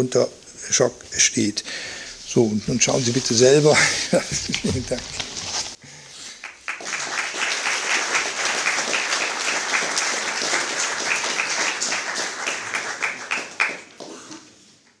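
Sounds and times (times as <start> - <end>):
audience applauding: 6.4 - 14.3.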